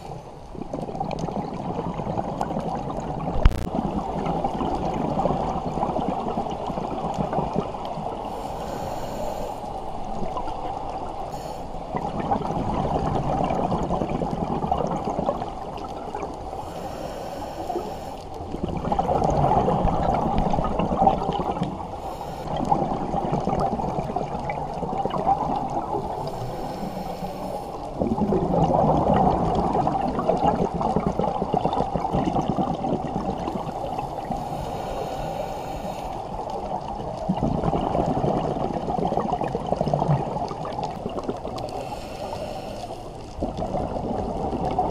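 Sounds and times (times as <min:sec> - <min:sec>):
exhaled bubbles gurgling: 0:00.0 - 0:44.9
regulator inhale hiss: 0:08.2 - 0:10.0, 0:11.3 - 0:11.8, 0:16.4 - 0:18.5, 0:21.8 - 0:22.7, 0:26.0 - 0:28.0, 0:33.7 - 0:36.4, 0:41.6 - 0:43.2.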